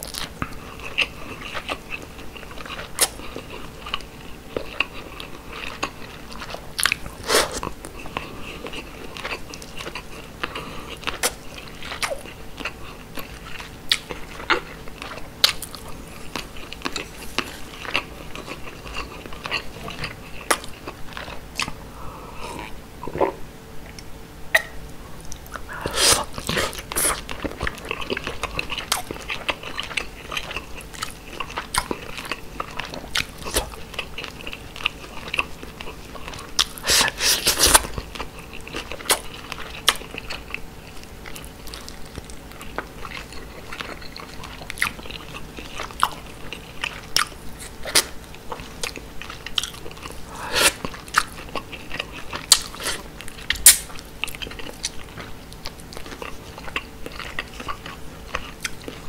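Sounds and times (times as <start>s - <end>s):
close chewing with wet mouth sounds: 0.0s - 59.0s.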